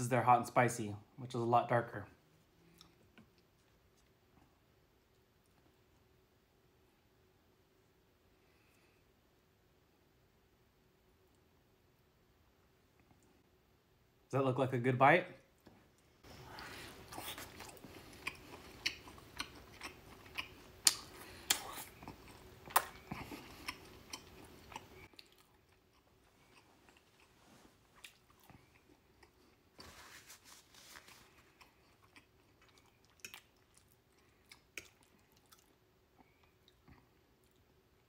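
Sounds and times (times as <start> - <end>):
person chewing meat: 16.2 - 29.8, 31.1 - 38.0
wet mouth clicks and smacks: 20.4 - 24.2.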